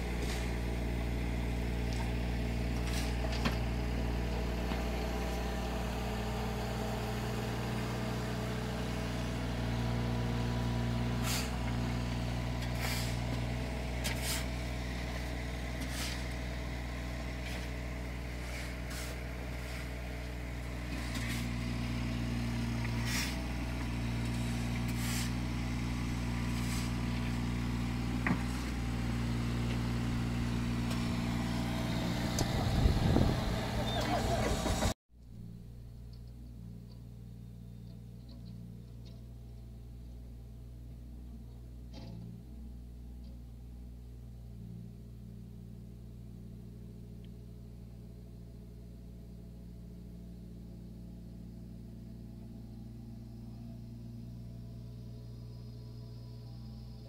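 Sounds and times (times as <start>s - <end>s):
construction machine engines running: 0.0s - 57.0s
short scrapes and knocks: 0.1s - 0.7s, 2.8s - 3.7s, 12.6s - 13.4s, 14.0s - 15.2s, 15.8s - 16.4s, 17.4s - 20.1s, 20.9s - 21.7s, 22.8s - 25.5s, 26.4s - 27.4s, 28.2s - 28.8s.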